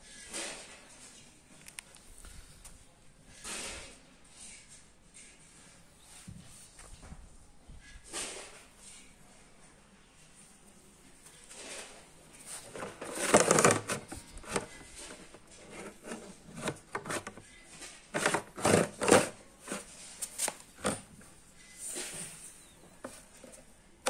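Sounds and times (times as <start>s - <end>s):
rustling and rubbing handling noise: 10.1s - 24.0s.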